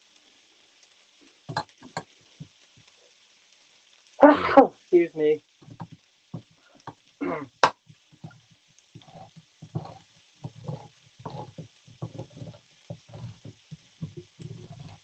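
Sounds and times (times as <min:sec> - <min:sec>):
can opener grinding crunches: 0:09.0 - 0:15.0.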